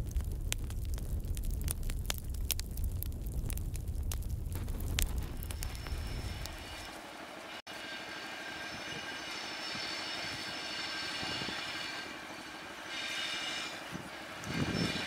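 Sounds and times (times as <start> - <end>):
distant diesel locomotive drone: 5.7 - 15.0.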